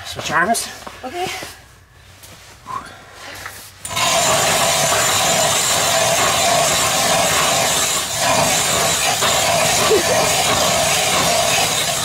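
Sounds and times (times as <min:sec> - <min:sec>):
ice auger grinding through ice: 0:03.8 - 0:12.0.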